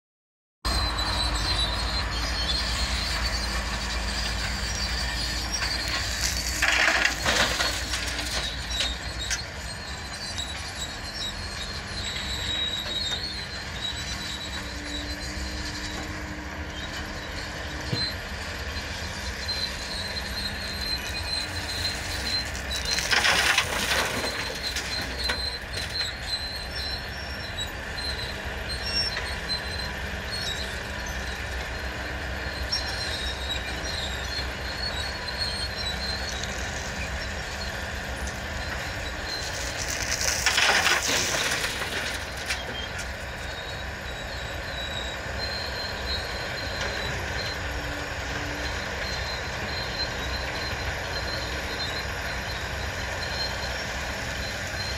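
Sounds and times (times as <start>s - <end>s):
excavator diesel engine rumble: 0.7s - 54.9s.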